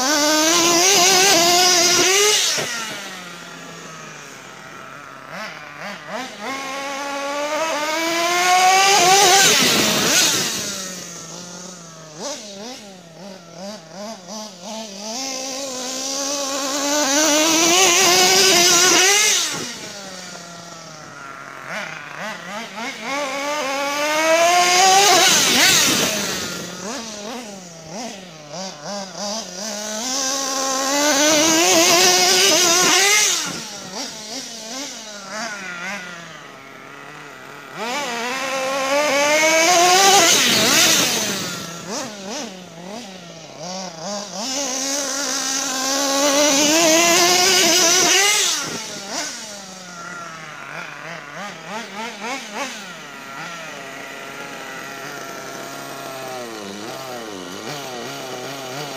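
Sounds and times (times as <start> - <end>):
rc truck engine revving: 0.0 - 58.9.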